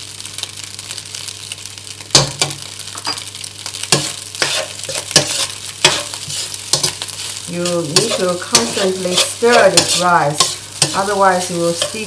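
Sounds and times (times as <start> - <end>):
rice sizzling in a wok: 0.0 - 12.0
metal spatula scraping a pan: 3.9 - 12.0.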